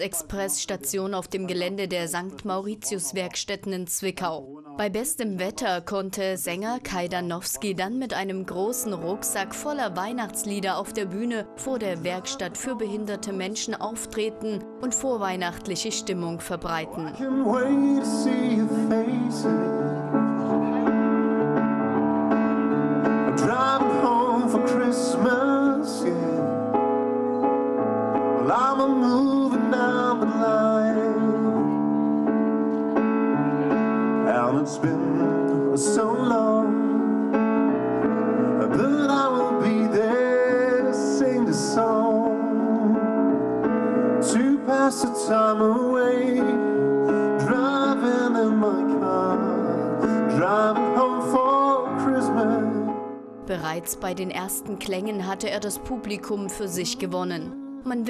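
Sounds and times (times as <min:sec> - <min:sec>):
keyboard chords: 0:08.3 - 0:58.0
man singing into microphone: 0:16.9 - 0:20.5, 0:23.0 - 0:26.8, 0:28.3 - 0:31.8, 0:34.2 - 0:37.6, 0:38.4 - 0:43.4, 0:44.2 - 0:53.1.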